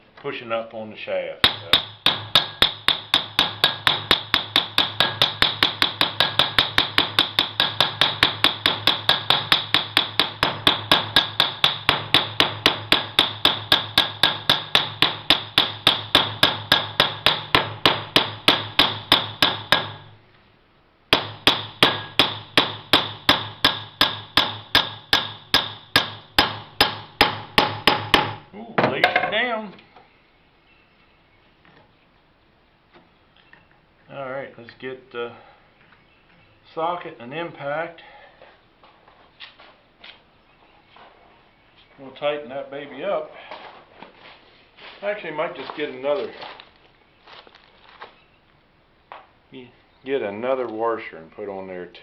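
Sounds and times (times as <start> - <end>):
hammer tapping on metal shaft: 1.4 - 20.0.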